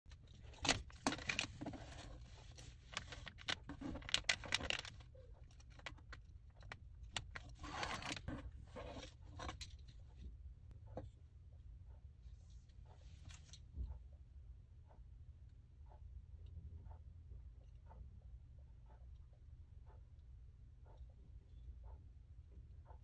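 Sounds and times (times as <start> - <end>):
steady low hum: 0.1 - 23.0
plastic bag crinkling: 0.4 - 8.3.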